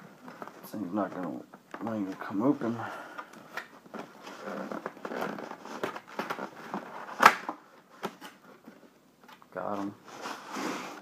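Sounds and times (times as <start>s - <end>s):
cardboard box rustling and scraping: 10.0s - 11.0s.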